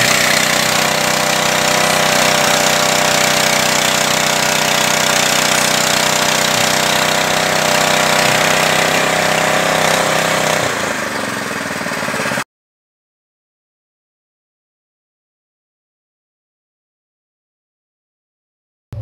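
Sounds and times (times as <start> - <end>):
pellet machine pressing feed: 0.0 - 12.4
small petrol engine running: 0.0 - 12.5.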